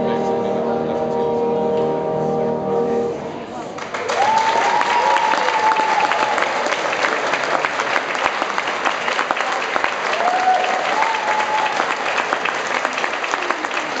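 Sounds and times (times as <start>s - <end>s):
audience clapping: 3.8s - 14.0s.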